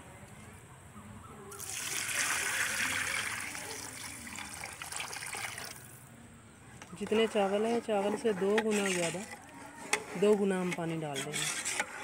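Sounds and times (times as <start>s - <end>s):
water pouring into pot: 1.6s - 5.9s.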